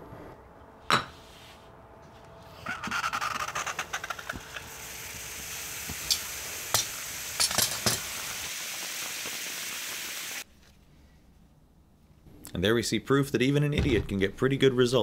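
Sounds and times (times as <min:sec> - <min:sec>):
hot metal sizzling in water: 0:03.0 - 0:10.4
steam hissing: 0:04.1 - 0:10.4.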